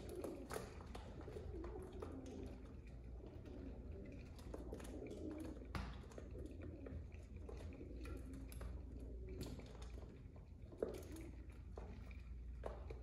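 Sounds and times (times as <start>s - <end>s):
pigeons cooing: 0.0s - 10.0s
pigeons pecking and scuffling: 0.0s - 13.0s.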